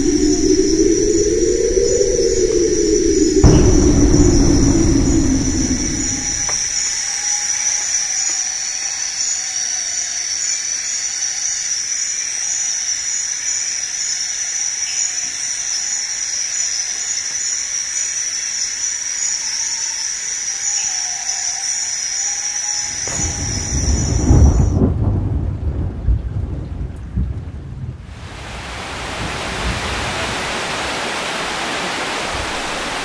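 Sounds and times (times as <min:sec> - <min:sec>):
insect chorus drone: 0:00.0 - 0:25.9.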